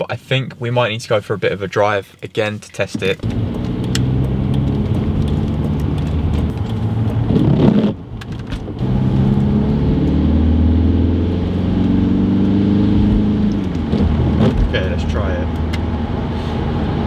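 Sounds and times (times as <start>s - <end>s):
car engine accelerating: 3.2s - 17.0s.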